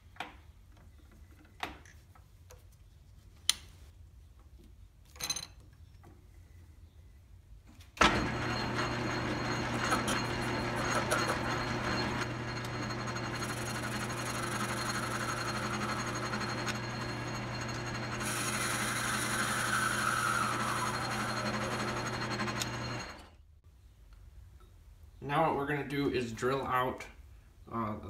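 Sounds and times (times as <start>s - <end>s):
lathe tool cutting metal: 8.0s - 23.3s
metal lathe motor humming: 8.0s - 23.3s.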